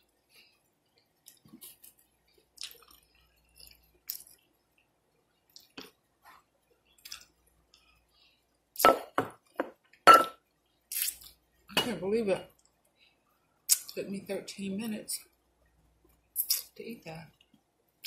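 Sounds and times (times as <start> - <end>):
soft chewing: 0.0 - 8.4
lip smacks: 13.7 - 14.0.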